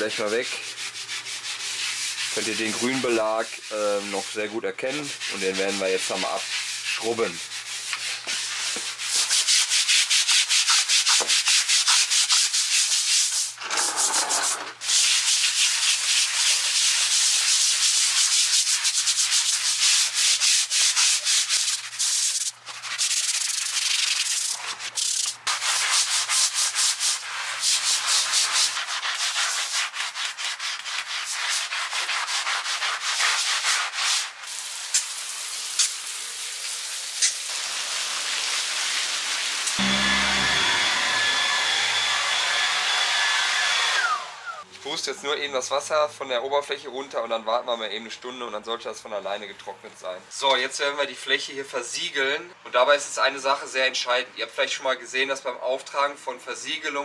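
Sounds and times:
deck scrubber on wet paving: 39.8 - 43.0.

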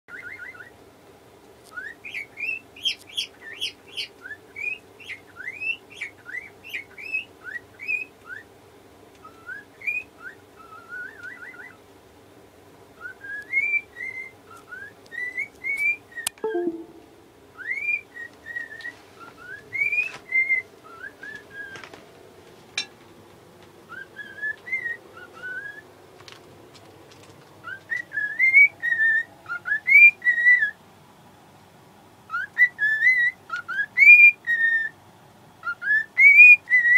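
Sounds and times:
cockatiel whistling: 0.1 - 0.7, 9.2 - 11.8, 13.0 - 17.0, 17.6 - 21.8, 23.9 - 25.8, 27.6 - 30.8, 32.3 - 34.9, 35.6 - 36.9.

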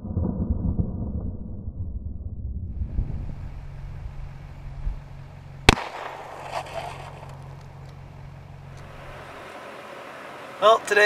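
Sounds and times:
rifle shot with echo: 5.7 - 7.8.

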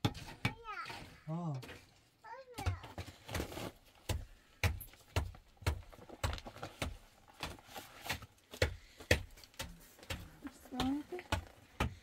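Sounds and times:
rhythmic knocking with dull thuds: 3.9 - 7.6, 8.2 - 12.0.

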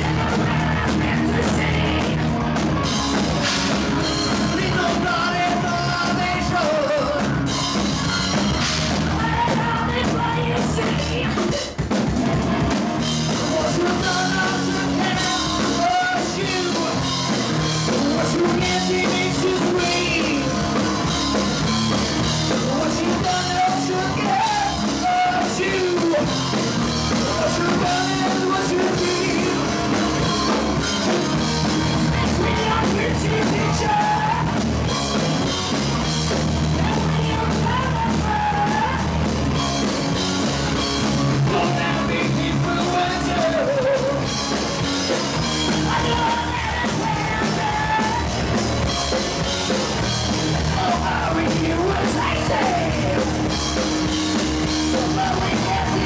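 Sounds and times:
man singing: 0.0 - 2.2, 4.2 - 7.7, 9.0 - 11.8, 13.3 - 21.1, 22.4 - 35.0, 36.6 - 39.3, 41.1 - 48.7, 50.4 - 56.0
rock band playing: 0.0 - 56.0.

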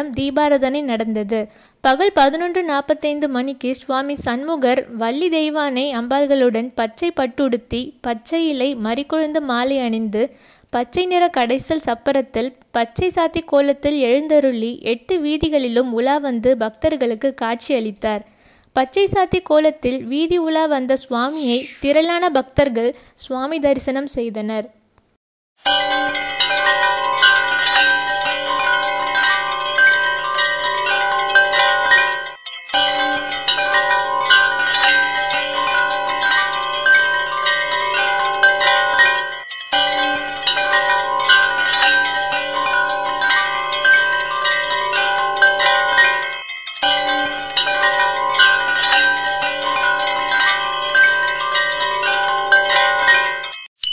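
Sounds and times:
temple bells clanging: 25.6 - 53.9.

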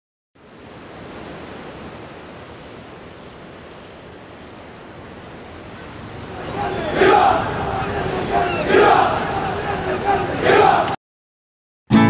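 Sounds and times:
ocean waves washing: 0.4 - 11.0.

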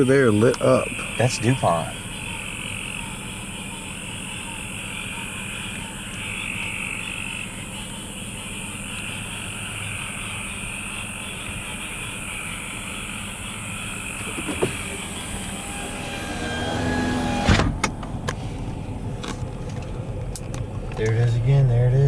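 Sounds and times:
frogs calling: 0.0 - 17.5
steady high drone: 0.0 - 17.5
steady low hum: 0.0 - 22.0.

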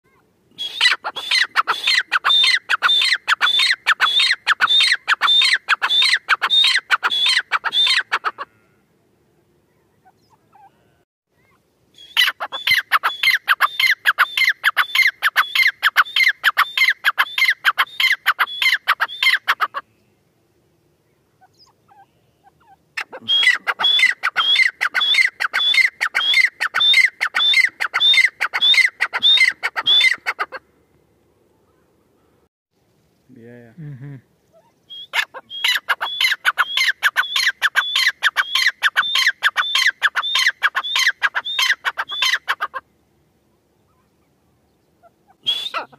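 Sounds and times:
bird high-pitched repeated calls: 0.6 - 8.5, 11.4 - 20.1, 21.1 - 30.6, 34.5 - 42.8, 43.8 - 45.9.

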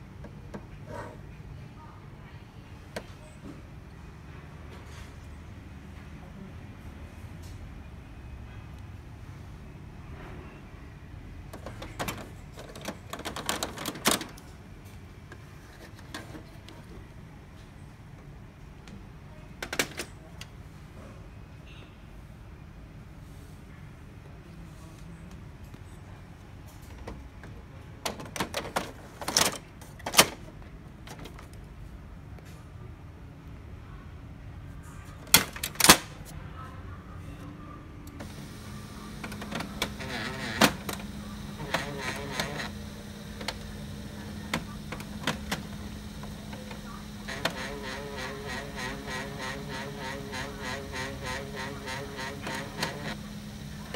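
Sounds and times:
laser printer motor humming: 38.2 - 53.9.

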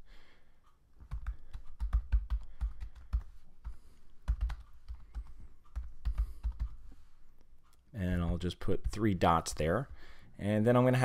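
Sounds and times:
computer keyboard typing: 1.0 - 6.8, 8.2 - 10.0.

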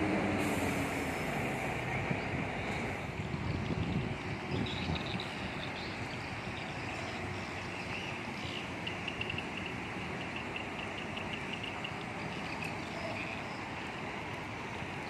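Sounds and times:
coach diesel engine running: 0.0 - 15.0
traffic noise: 0.0 - 15.0
faint high-pitched ticking: 8.8 - 13.2.

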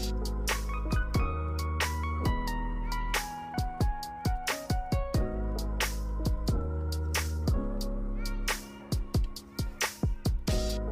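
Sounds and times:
kick drum beat: 0.9 - 2.6, 3.6 - 5.4, 6.1 - 6.8, 7.4 - 7.8, 8.9 - 10.9.

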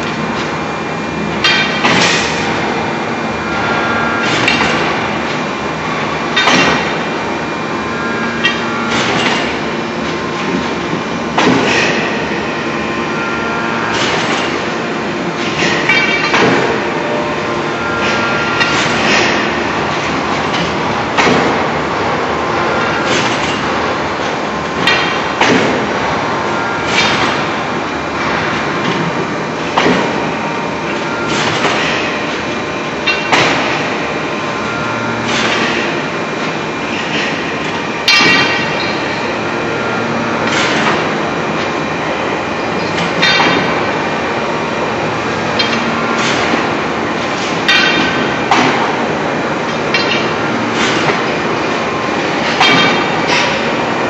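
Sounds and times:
machinery hum: 0.0 - 54.0
sharp metallic clanks: 38.1 - 39.0.

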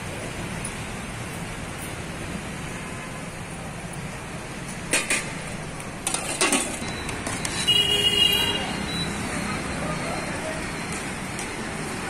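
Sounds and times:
road traffic noise: 0.0 - 12.0
ladle clinking against metal pot: 6.0 - 6.9.

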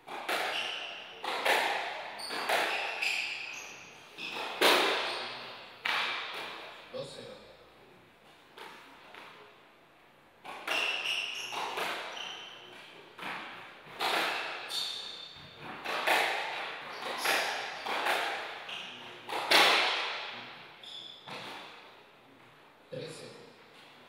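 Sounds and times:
squash ball hitting racquets and walls: 0.0 - 6.8, 10.4 - 22.0
shoes squeaking on wooden floor: 0.2 - 6.0, 10.5 - 15.8.

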